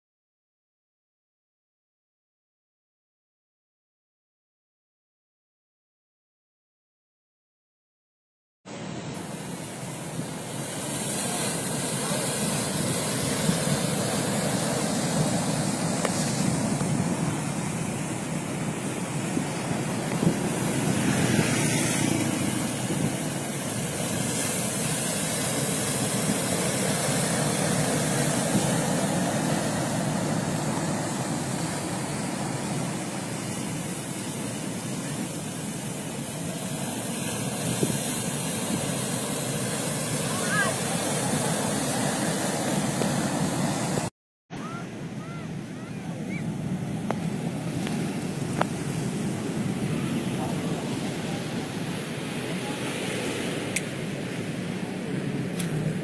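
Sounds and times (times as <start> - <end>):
ocean surf breaking: 8.7 - 56.0.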